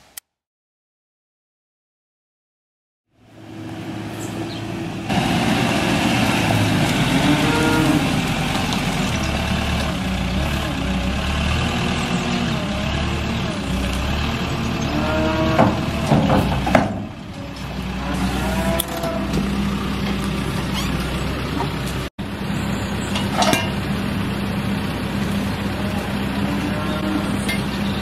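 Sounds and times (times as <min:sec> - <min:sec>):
wheel loader engine running: 0:03.2 - 0:28.0.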